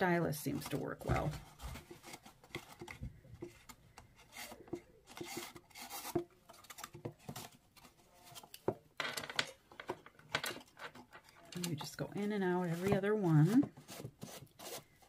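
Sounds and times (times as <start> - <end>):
paper rustling and rubbing: 0.4 - 8.6, 11.3 - 15.0.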